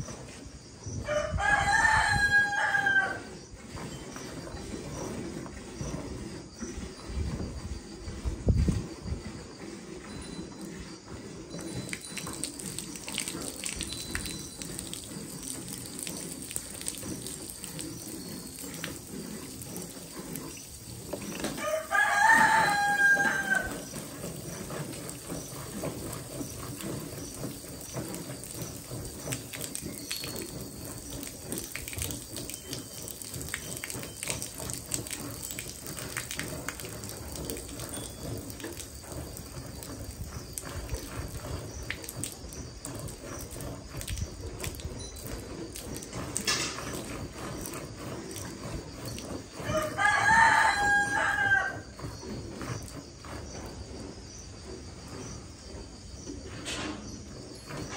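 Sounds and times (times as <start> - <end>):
rooster crowing: 1.0 - 3.3, 21.5 - 23.9, 49.6 - 52.0
milk squirting into steel pail: 11.4 - 50.6.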